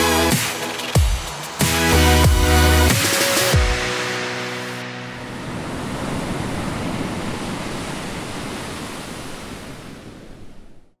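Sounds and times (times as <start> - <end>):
small waves breaking on shore: 5.2 - 11.0.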